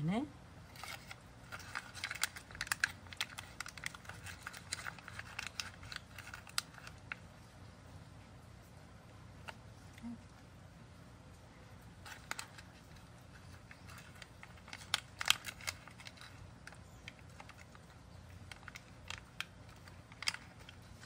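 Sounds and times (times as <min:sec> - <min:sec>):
cat crunching treats: 0:00.7 - 0:07.5, 0:11.8 - 0:21.0.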